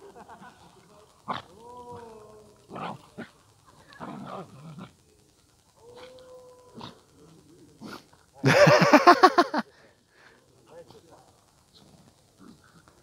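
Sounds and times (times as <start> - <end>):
dogs growling and snarling: 2.7 - 5.0, 11.7 - 13.0.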